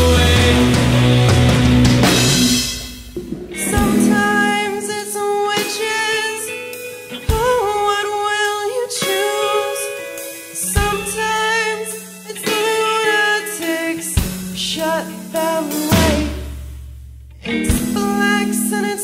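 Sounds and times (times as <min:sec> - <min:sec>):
band playing: 0:00.0 - 0:08.1, 0:15.4 - 0:16.7
woman singing long notes: 0:03.6 - 0:06.5, 0:07.3 - 0:10.0.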